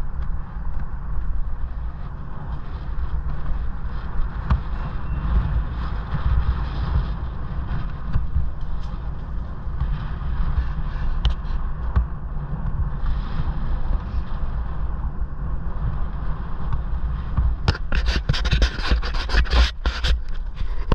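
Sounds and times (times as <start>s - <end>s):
tyre rumble on tarmac: 0.0s - 20.9s
wind buffeting microphone: 0.0s - 20.9s
scraping and crackling: 16.7s - 20.9s.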